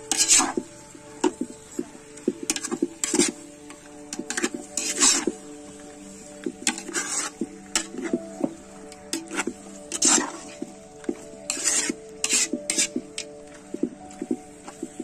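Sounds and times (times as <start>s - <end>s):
metal spoon scraping a pot: 0.0s - 0.6s, 2.5s - 3.4s, 4.1s - 5.3s, 6.6s - 8.2s, 9.1s - 10.6s, 11.5s - 13.4s
soft background music: 0.0s - 15.0s.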